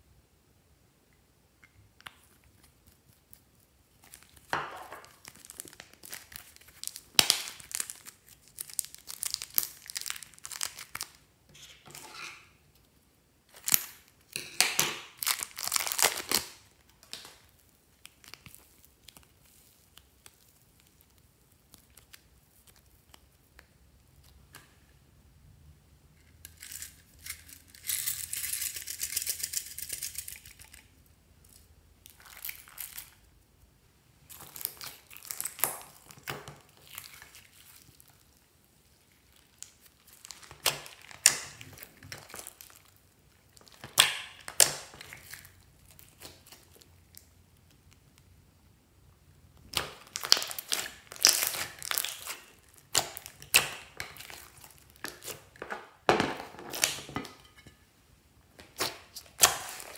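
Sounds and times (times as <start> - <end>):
slime squishing and crackling: 2.0 - 12.9, 13.5 - 24.5, 31.5 - 33.3, 34.2 - 48.3, 49.5 - 57.6, 58.6 - 59.9.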